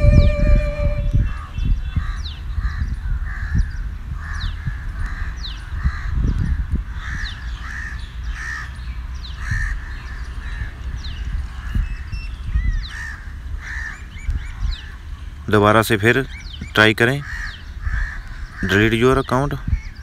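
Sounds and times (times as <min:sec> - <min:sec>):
low thumps: 0:00.0 - 0:01.3
harsh caw-like bird calls: 0:02.0 - 0:10.8, 0:12.7 - 0:15.2, 0:16.4 - 0:19.2.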